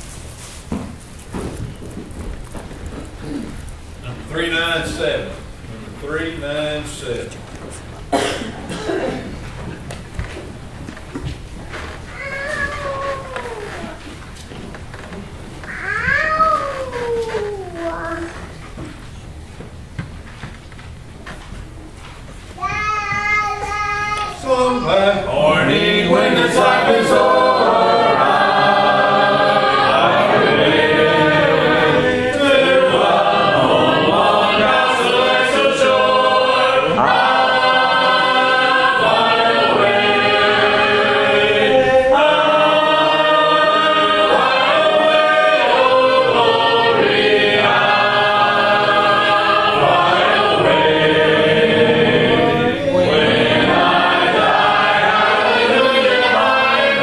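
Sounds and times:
congregation singing a hymn: 4.1 - 7.3, 8.1 - 10.0, 24.5 - 57.0.

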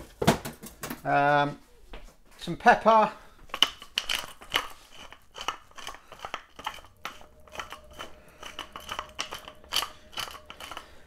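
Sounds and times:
pepper mill grinding peppercorns: 3.5 - 11.0.

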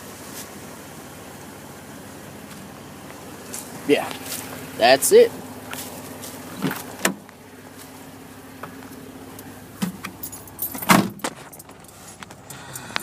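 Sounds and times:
car engine idling: 0.0 - 13.0
jangling and clicking handling: 10.0 - 13.0.

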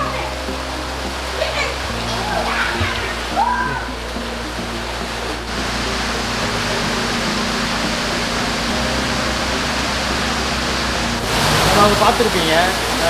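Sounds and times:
pump motors humming: 0.0 - 13.0
water rushing: 0.0 - 13.0.

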